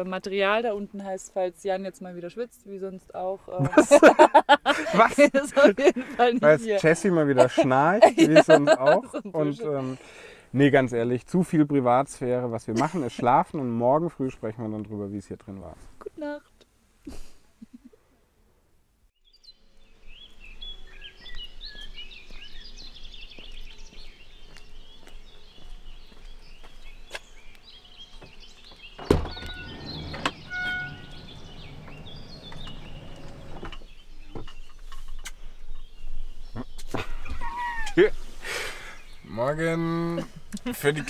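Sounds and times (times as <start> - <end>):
birds chirping and singing: 19.2 - 40.1
power sliding door running open: 29.0 - 33.7
sliding door unlatching thunk: 29.0 - 33.9.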